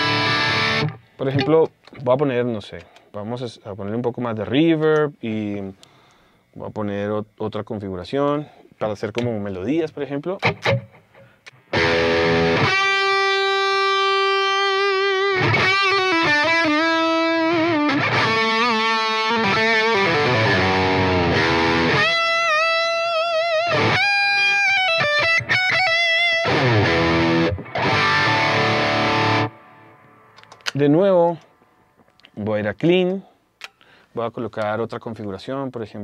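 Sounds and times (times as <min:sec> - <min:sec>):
electric guitar slow lead melody: 0:00.0 - 0:01.6, 0:10.4 - 0:30.7.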